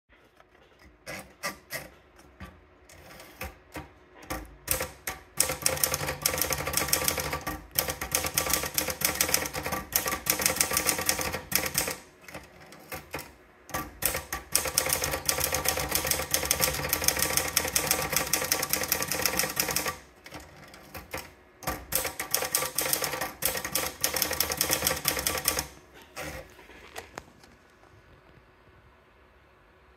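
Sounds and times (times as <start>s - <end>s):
fast typewriter typing: 3.0s - 26.5s.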